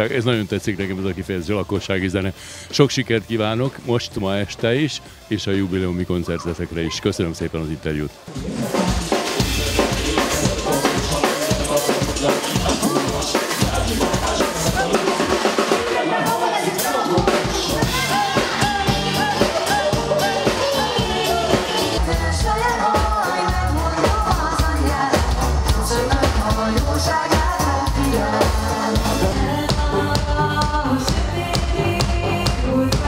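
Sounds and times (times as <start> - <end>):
live band dance music: 0.0 - 33.0
people singing: 8.3 - 33.0.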